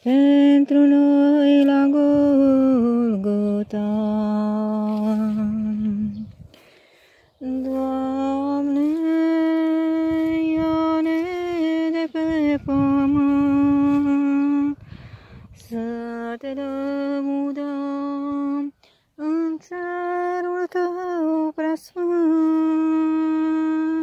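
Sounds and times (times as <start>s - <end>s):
woman singing a hymn: 0.0s - 24.0s.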